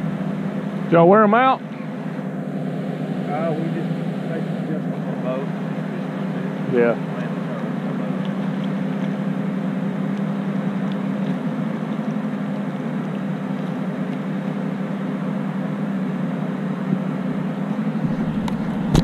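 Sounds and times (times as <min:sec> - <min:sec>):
motor humming: 0:00.0 - 0:19.0
low rumble: 0:16.9 - 0:19.0.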